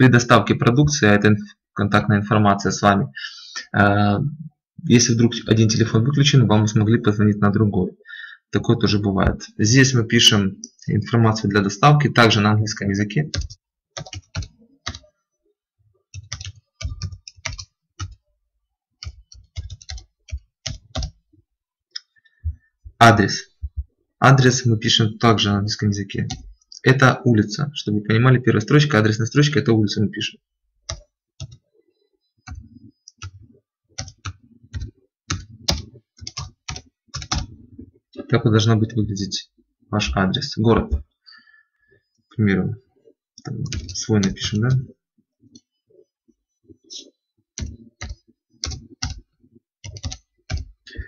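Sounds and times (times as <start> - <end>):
typing on a computer keyboard: 13.3 - 15.1, 16.1 - 18.2, 19.0 - 21.2, 30.8 - 31.7, 32.4 - 37.7, 43.4 - 44.5, 47.6 - 51.0.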